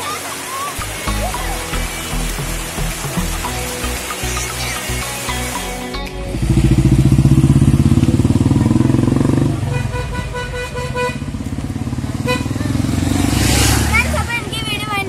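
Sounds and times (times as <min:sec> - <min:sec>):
road traffic: 0:00.0 - 0:15.0
motorcycle passing by: 0:02.8 - 0:15.0
vehicle horn short beeps: 0:12.2 - 0:12.6.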